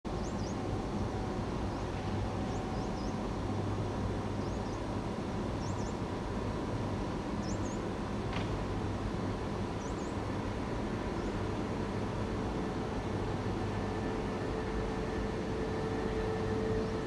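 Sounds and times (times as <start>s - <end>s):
electric locomotive humming: 0.1s - 17.0s
bird chirps: 5.6s - 6.0s.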